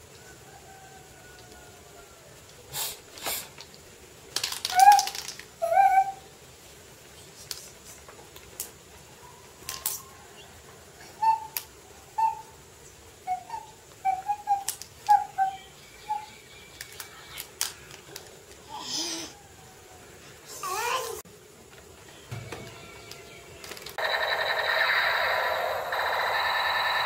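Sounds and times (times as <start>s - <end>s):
plastic toy track clacking on tiles: 4.3s - 5.5s, 16.8s - 18.3s, 23.0s - 27.0s.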